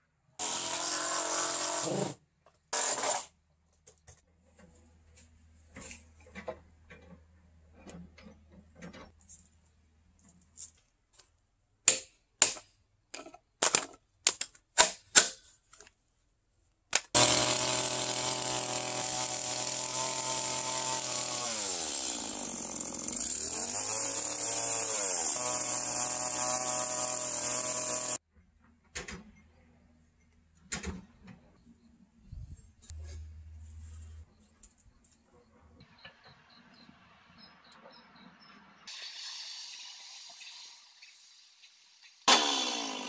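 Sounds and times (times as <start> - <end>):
chainsaw running at high revs: 17.2 - 28.2, 42.3 - 43.0.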